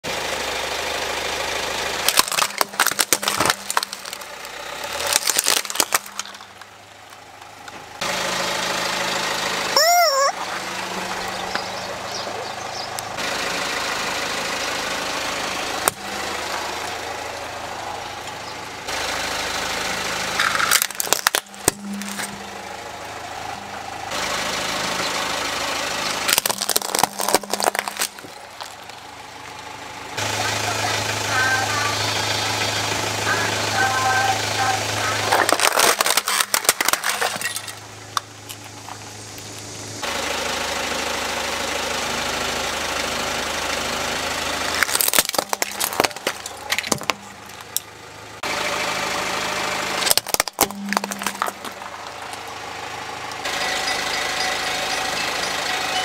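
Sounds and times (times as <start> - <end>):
car engine running: 0.0 - 56.0
plastic toys cracking under tyre: 2.0 - 7.8, 20.4 - 22.3, 26.2 - 29.0, 35.2 - 38.8, 44.8 - 47.9, 50.0 - 52.4
rubber chicken toy squawk: 9.8 - 10.4.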